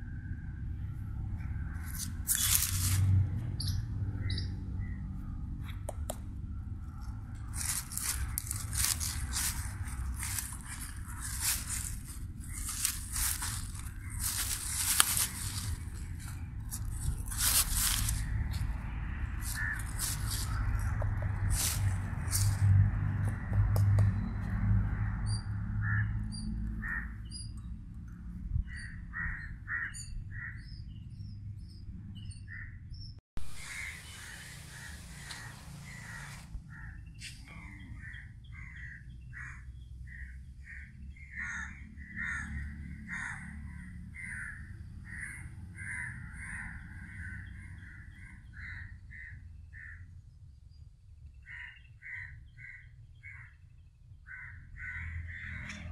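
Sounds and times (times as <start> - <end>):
low steady rumble: 0.0 - 30.2
crows cawing: 7.4 - 18.6, 19.4 - 22.5, 25.0 - 26.2, 26.8 - 27.2, 28.7 - 30.7, 33.6 - 37.1, 37.7 - 50.0, 51.4 - 53.6, 54.3 - 55.8
rush of hissing noise: 33.4 - 36.5.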